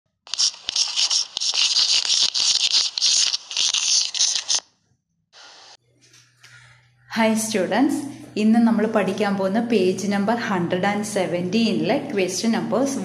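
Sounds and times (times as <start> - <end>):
chalk scratching on blackboard: 0.3 - 4.6.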